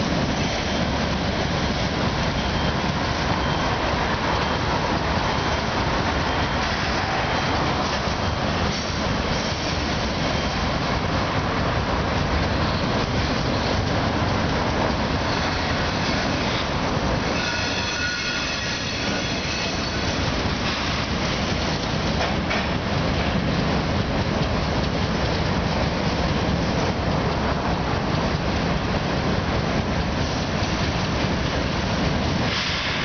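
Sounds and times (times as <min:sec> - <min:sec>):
train wheels rumbling on rails: 0:00.0 - 0:33.0
high wheel squeal: 0:00.1 - 0:08.2, 0:15.1 - 0:21.5.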